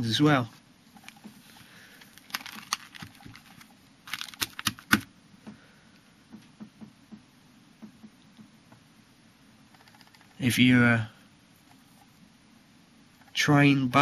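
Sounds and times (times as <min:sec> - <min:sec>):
plastic sleeve pages crinkling: 0:01.0 - 0:05.1.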